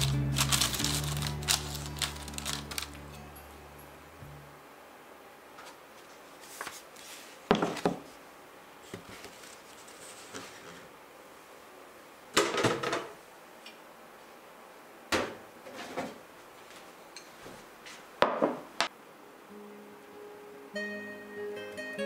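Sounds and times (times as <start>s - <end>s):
paper rustling: 0.0s - 3.0s, 5.6s - 8.0s, 8.8s - 10.9s.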